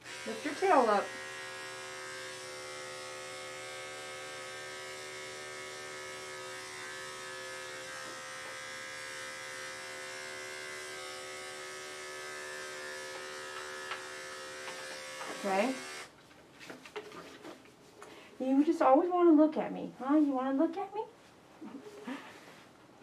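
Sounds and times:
electric clipper humming: 0.0 - 16.1.

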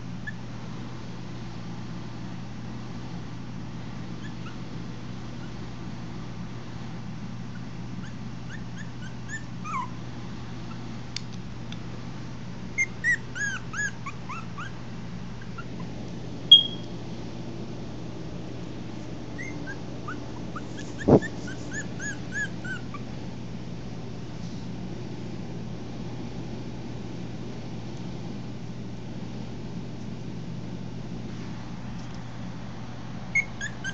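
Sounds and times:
steady low hum: 0.0 - 33.9
puppies whimpering and yipping: 4.2 - 4.6, 7.5 - 10.0, 12.8 - 14.8, 19.3 - 23.1, 33.4 - 33.9.

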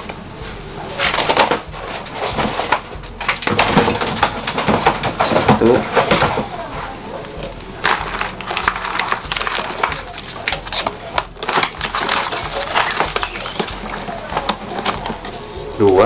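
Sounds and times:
plastic basket crackling and clicking: 7.2 - 16.0.

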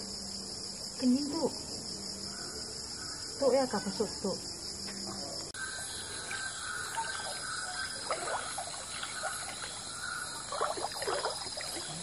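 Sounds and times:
insects chirping: 0.0 - 12.0
water sloshing around wading legs: 6.1 - 12.0.

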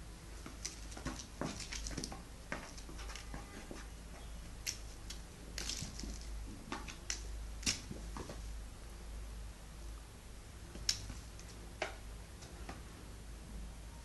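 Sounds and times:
steady low hum: 0.0 - 14.0
kitten batting beaded ball: 4.6 - 8.4.

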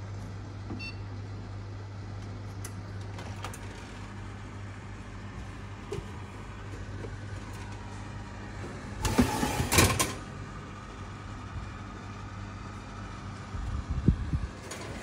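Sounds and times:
steady low hum: 0.0 - 15.0
metal oven rack sliding out: 9.0 - 10.2.

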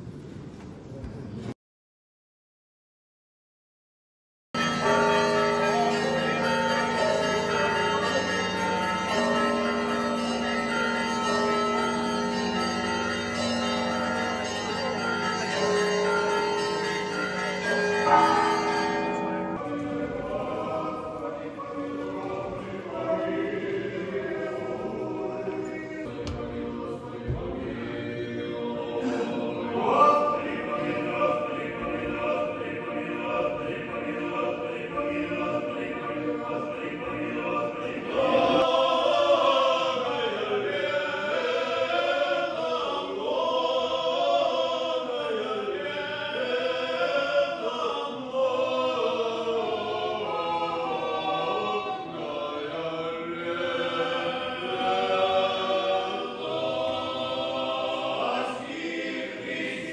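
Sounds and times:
men's choir chanting unaccompanied: 19.6 - 59.9.

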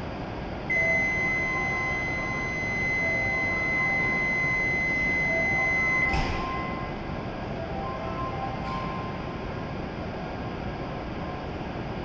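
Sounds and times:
low station hum: 0.0 - 12.0
high-pitched electronic warning tone: 0.7 - 7.0.

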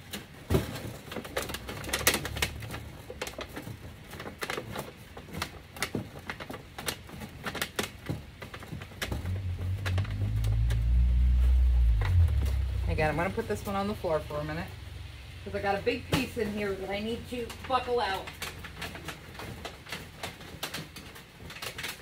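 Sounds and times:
aluminum sheet crackling: 0.0 - 22.0
low rumble: 9.0 - 19.0.

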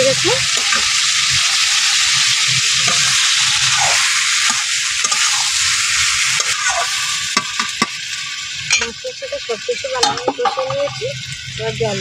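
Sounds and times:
spice paste sizzling in a pan: 0.0 - 12.0
metal spatula scraping a pan: 2.8 - 5.7, 10.0 - 11.1.

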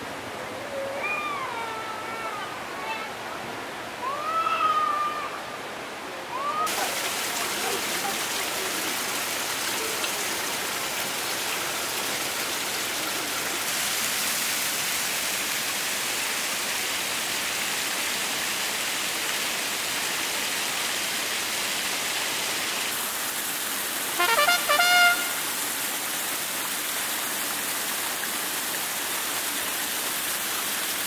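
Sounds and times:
water splashing over rocks: 6.7 - 31.0.

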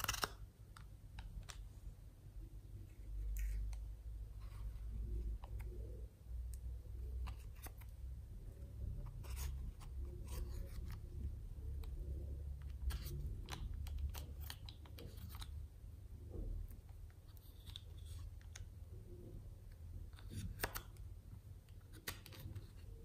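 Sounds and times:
plastic spatula scraping eyeshadow: 8.8 - 11.2.

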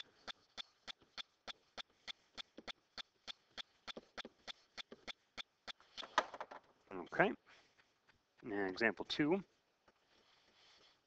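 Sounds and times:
faint evenly spaced clicking: 0.0 - 6.2.

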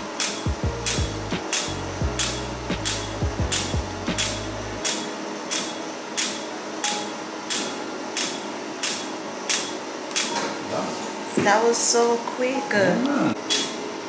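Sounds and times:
laser pulse snap with hiss: 0.2 - 10.4.

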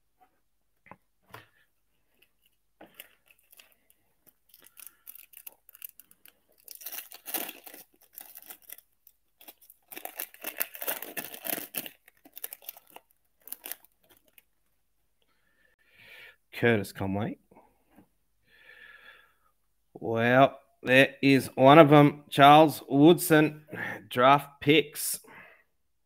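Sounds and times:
foil wrappers crinkling: 2.2 - 14.6
foil wrapper tearing: 3.0 - 14.4.

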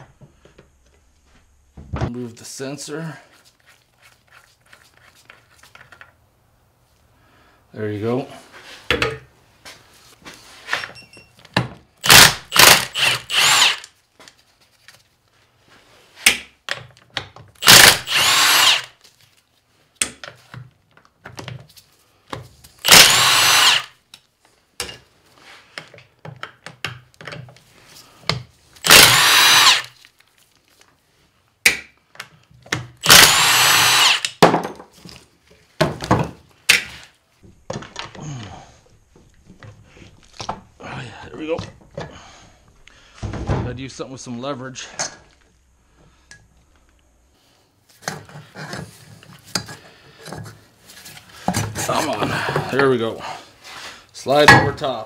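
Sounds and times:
power tool whining: 12.0 - 13.9, 17.6 - 18.9, 22.8 - 23.9, 28.8 - 30.0, 33.0 - 34.4.

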